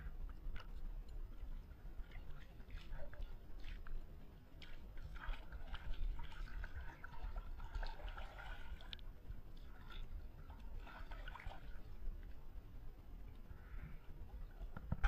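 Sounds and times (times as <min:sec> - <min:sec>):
water splashing and dripping: 0:04.6 - 0:11.9.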